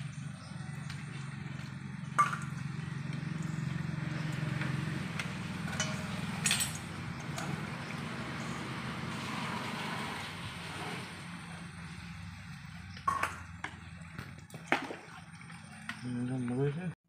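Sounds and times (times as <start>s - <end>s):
clinks off metal bowl: 2.2s - 2.6s, 5.7s - 6.9s.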